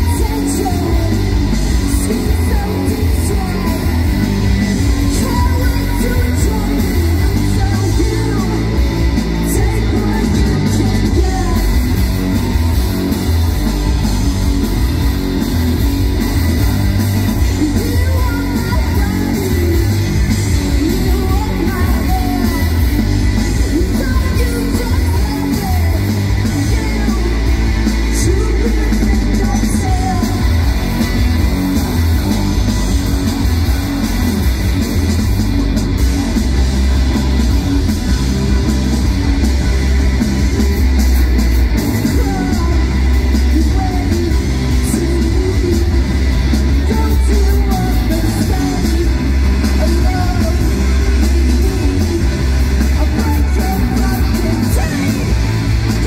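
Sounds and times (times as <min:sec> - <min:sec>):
bass guitar: 0:00.0 - 0:56.0
distorted electric guitars: 0:00.0 - 0:56.0
drum kit: 0:00.0 - 0:56.0
rock vocals: 0:00.0 - 0:56.0.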